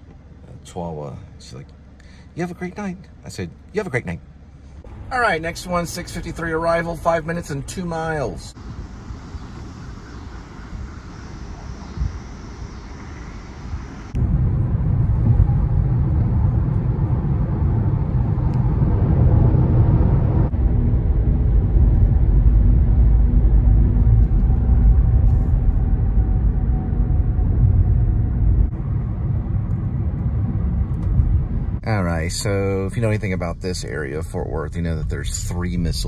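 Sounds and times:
car road and engine rumble: 0.0 - 36.0.

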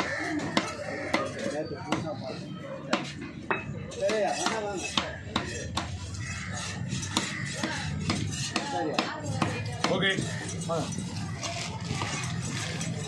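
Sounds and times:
knife chopping on wooden block: 0.0 - 2.0, 6.6 - 10.0.

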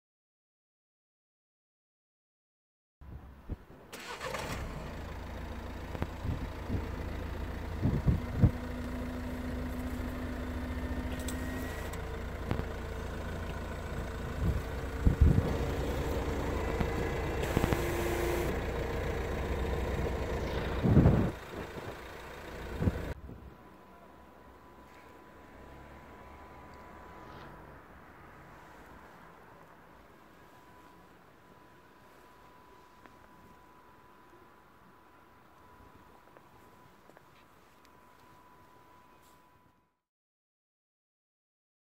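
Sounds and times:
diesel engine idling: 4.0 - 36.2.

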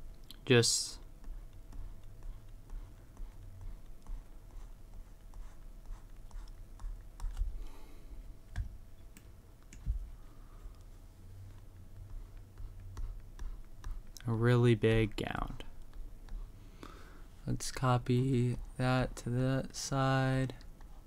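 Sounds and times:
stylus tapping drawing tablet: 1.2 - 7.5, 11.5 - 14.2.

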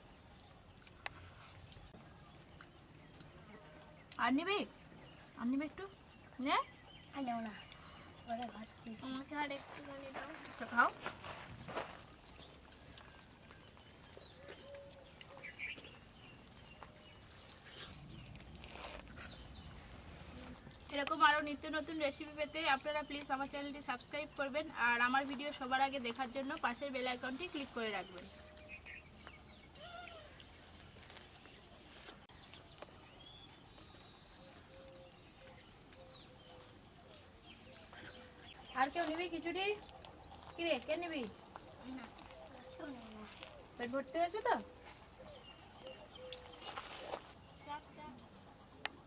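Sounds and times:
bird calls and chirps: 11.8 - 49.0
faint scattered clicks: 32.4 - 47.4.

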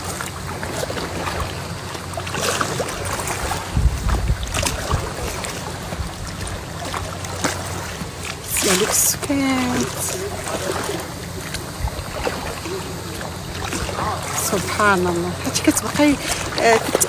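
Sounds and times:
water lapping around hull: 0.0 - 17.0
wind buffeting microphone: 2.8 - 6.9, 8.0 - 17.0.

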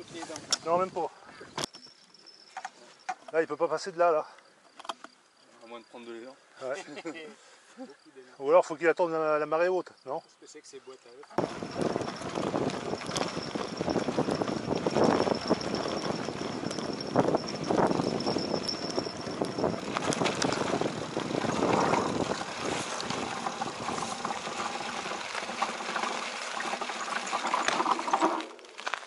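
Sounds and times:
bike clicks and rattles: 11.4 - 29.0
bike tyre and wind rush: 11.4 - 29.0.

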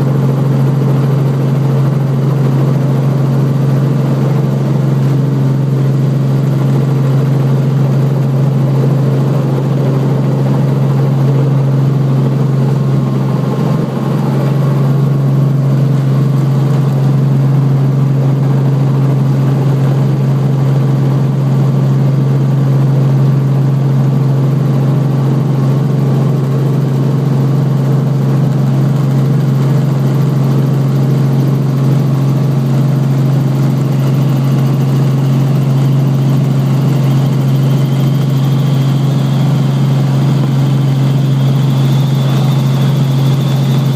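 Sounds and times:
helicopter engine and rotor drone: 0.0 - 43.9
faint high whine: 33.4 - 43.9.

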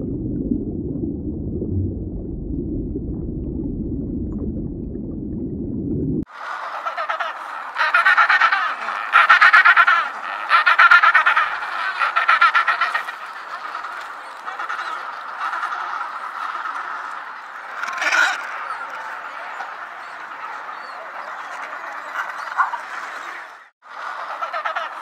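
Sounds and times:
penguins braying: 6.4 - 25.0.

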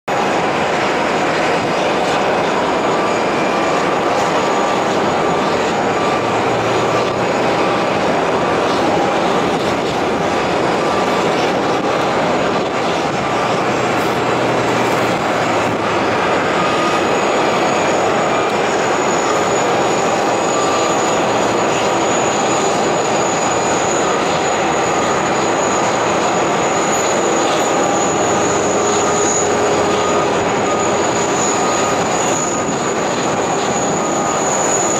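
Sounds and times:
aircraft turbine roar and whine: 0.0 - 34.9
high whine: 0.1 - 34.9.

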